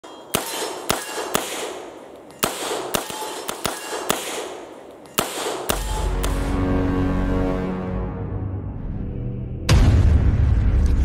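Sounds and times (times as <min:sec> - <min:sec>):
gunshots with echoing tail: 0:00.0 - 0:06.6
music: 0:05.8 - 0:11.0.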